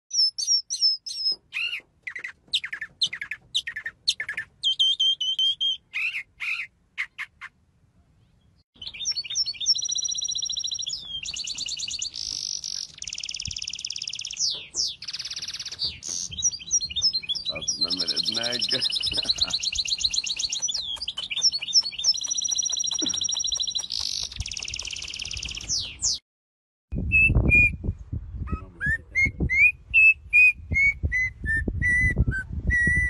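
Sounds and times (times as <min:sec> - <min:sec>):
mockingbird singing: 0:00.1 - 0:07.6, 0:08.2 - 0:26.2
songbird buzzy trilling: 0:00.1 - 0:07.6, 0:08.8 - 0:26.2.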